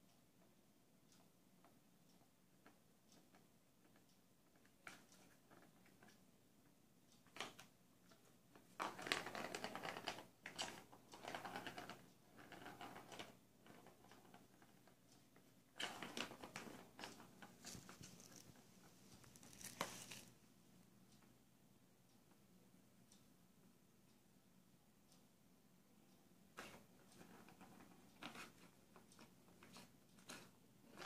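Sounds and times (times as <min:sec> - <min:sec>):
ball rattling around plastic track: 0:08.8 - 0:14.9, 0:15.8 - 0:18.6.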